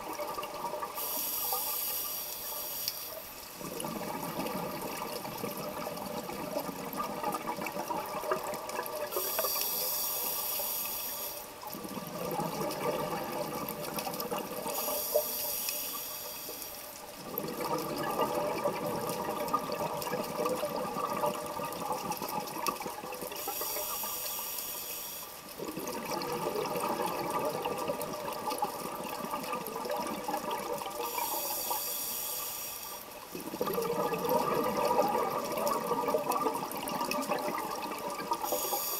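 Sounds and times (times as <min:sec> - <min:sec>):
hissing regulator inhale: 0:01.0 - 0:03.4, 0:09.1 - 0:11.5, 0:14.7 - 0:16.9, 0:23.4 - 0:25.4, 0:31.0 - 0:33.1, 0:38.4 - 0:38.9
exhaled bubbles rushing: 0:03.6 - 0:09.2, 0:11.7 - 0:14.7, 0:17.2 - 0:23.4, 0:25.6 - 0:31.2, 0:33.3 - 0:38.5.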